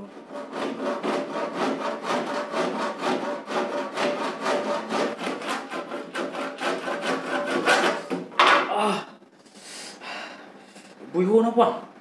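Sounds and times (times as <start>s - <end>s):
hand saw cutting wood: 0.0s - 8.2s.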